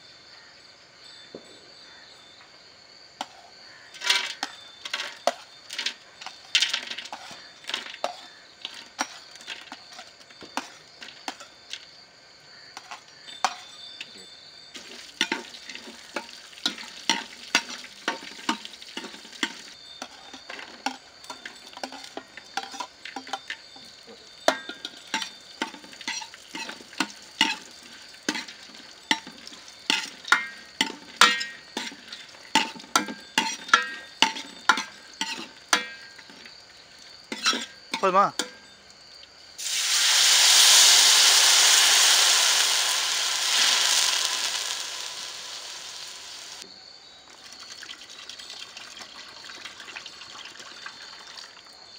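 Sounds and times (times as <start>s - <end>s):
metal spoon clinking and scraping pot: 3.2s - 11.6s, 12.7s - 14.1s, 14.7s - 38.8s
nuts sizzling in hot fat: 3.6s - 13.6s, 14.7s - 46.7s.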